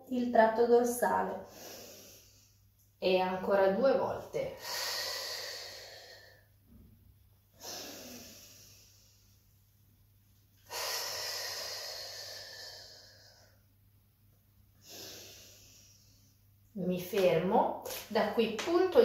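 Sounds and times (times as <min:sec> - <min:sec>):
woman breathing deeply: 0:01.4 - 0:02.8, 0:04.5 - 0:06.9, 0:07.5 - 0:09.7, 0:10.6 - 0:13.8, 0:14.7 - 0:16.7.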